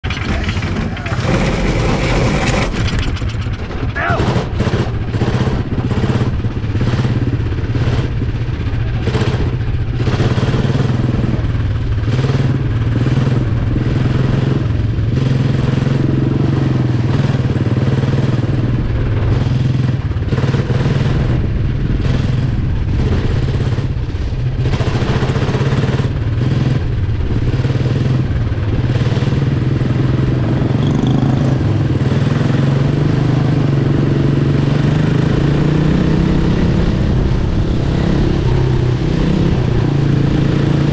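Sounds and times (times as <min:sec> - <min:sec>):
kart engine racing: 0:00.0 - 0:40.9.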